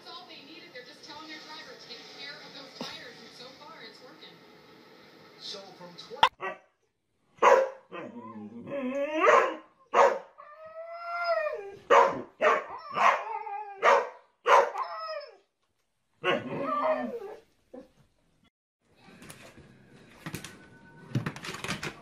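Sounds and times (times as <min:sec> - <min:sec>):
dog barking: 0:06.2 - 0:06.7, 0:07.4 - 0:08.1, 0:09.2 - 0:10.4, 0:11.9 - 0:14.8, 0:16.2 - 0:16.6
dog howling: 0:12.6 - 0:14.0, 0:16.3 - 0:17.4.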